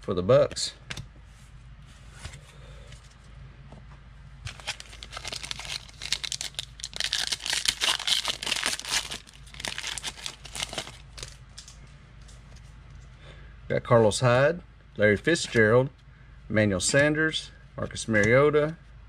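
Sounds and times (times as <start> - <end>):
plastic foil wrapper tearing: 4.5 - 11.8.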